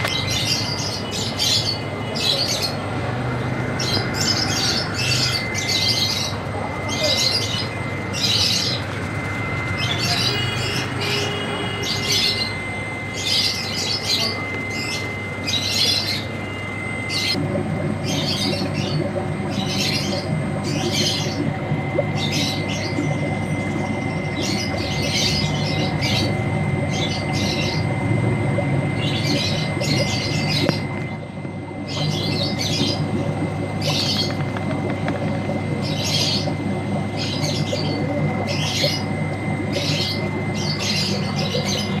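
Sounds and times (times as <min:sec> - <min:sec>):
birds chirping: 0:00.0 - 0:17.4, 0:18.0 - 0:42.0
steady low hum: 0:00.0 - 0:42.0
thin constant high tone: 0:03.6 - 0:17.4.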